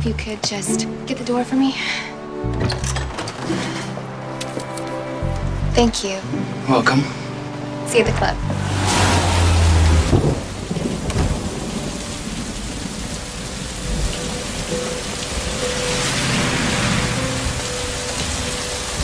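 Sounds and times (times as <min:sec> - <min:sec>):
heavy rain pouring: 0:06.5 - 0:19.0.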